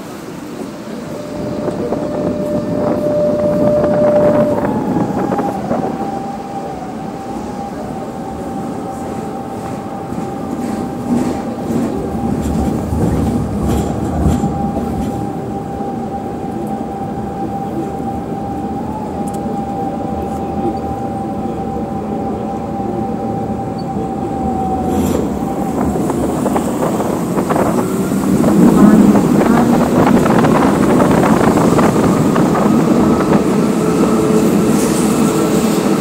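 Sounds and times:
tram running on rails: 0.0 - 36.0
steady high tone: 0.8 - 11.3.

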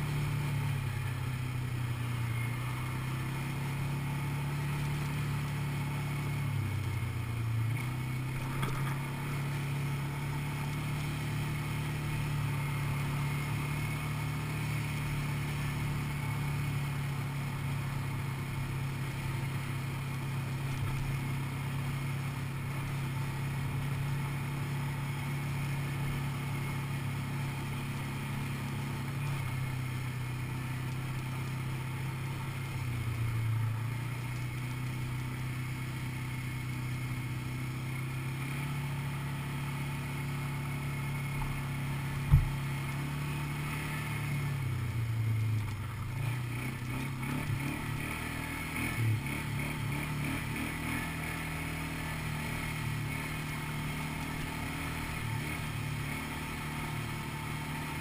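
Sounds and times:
quad bike engine running: 0.0 - 58.0.

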